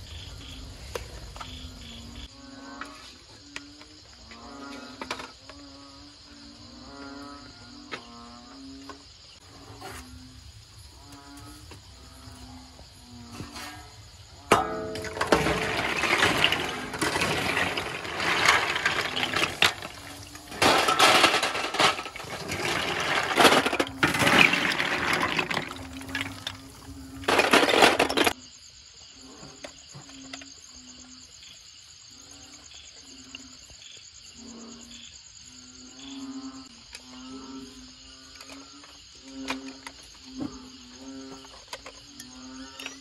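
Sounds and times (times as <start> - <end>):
insects chirping: 0.0 - 43.0
snail shells clattering on metal: 14.5 - 28.4.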